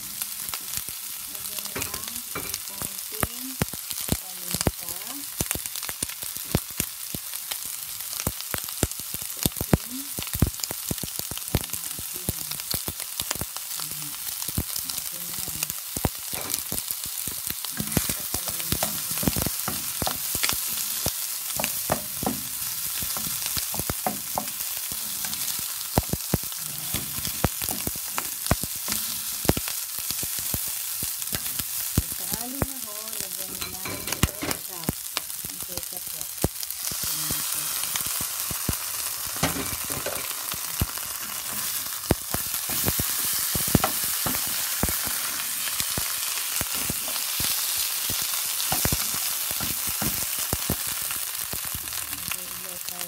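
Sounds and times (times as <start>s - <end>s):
food sizzling in a frying pan: 0.0s - 53.0s.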